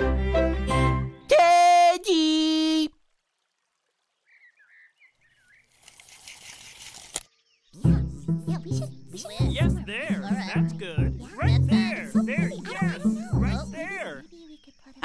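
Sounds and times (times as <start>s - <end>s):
string music: 0.0s - 1.3s, 7.8s - 14.3s.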